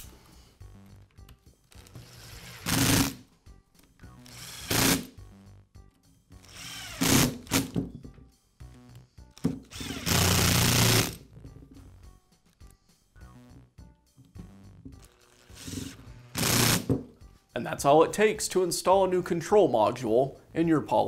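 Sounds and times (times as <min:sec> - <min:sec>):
cordless driver driving screws: 0:06.4 - 0:07.8, 0:09.4 - 0:11.2.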